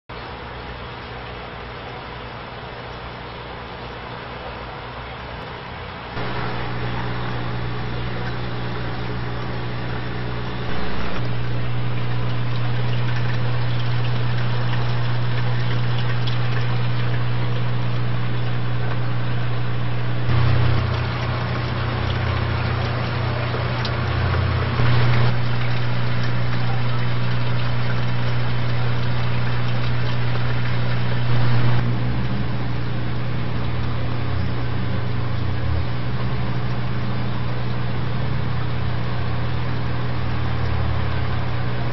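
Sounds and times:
aquarium equipment humming: 0.2s - 41.9s.

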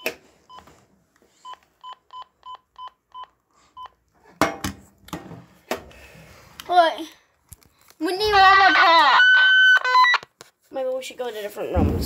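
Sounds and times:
walkie-talkie beeps: 8.5s - 10.3s.

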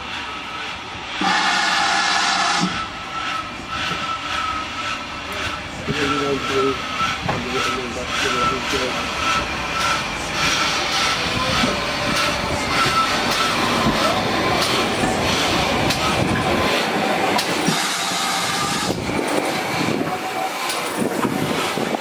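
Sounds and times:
wheel squeals: 2.4s - 16.8s
locomotive wheels clanking: 2.5s - 22.0s.

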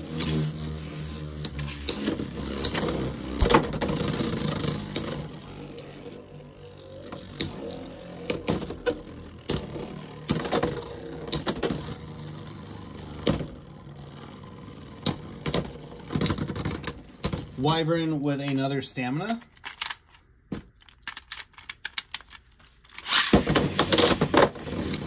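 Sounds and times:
spinning tops whirring: 0.0s - 18.6s, 22.9s - 25.0s
spinning tops clicking together: 20.9s - 24.2s.

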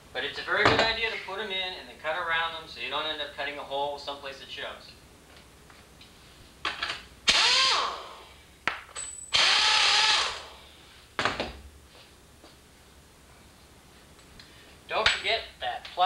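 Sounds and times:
air tool whirring: 7.3s - 8.3s, 9.3s - 10.7s.

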